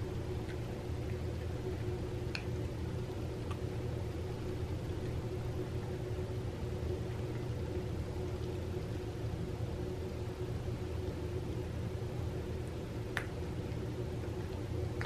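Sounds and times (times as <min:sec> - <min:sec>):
low room hum: 0:00.0 - 0:15.0
cat chewing bone clicks: 0:01.8 - 0:02.6, 0:03.4 - 0:03.7.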